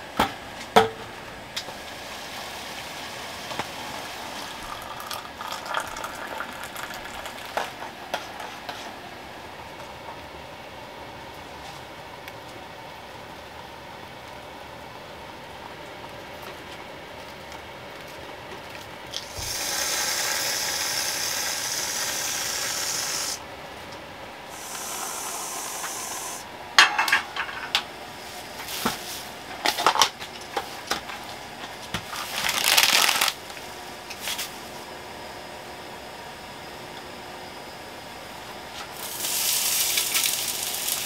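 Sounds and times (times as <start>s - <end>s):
gas stove hiss: 0.0s - 9.6s, 19.1s - 23.4s, 24.5s - 31.0s, 38.7s - 41.0s.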